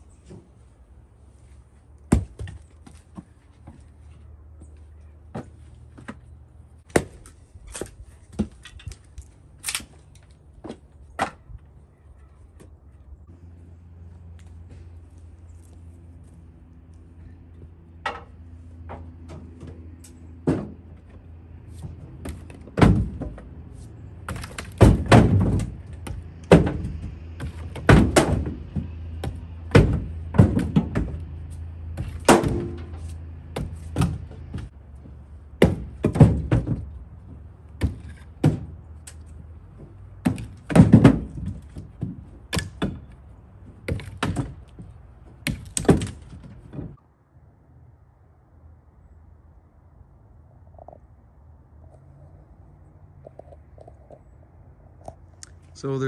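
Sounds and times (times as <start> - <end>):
firewood thunking and knocking: 2.1 - 3.9, 6.8 - 9.9, 18.0 - 23.6, 24.2 - 47.0
wood pieces clattering: 24.2 - 31.3.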